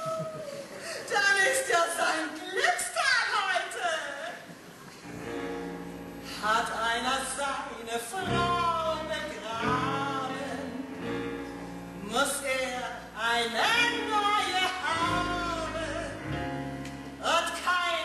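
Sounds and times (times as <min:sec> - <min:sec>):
woman singing with vibrato: 0:06.4 - 0:11.2, 0:12.0 - 0:16.2.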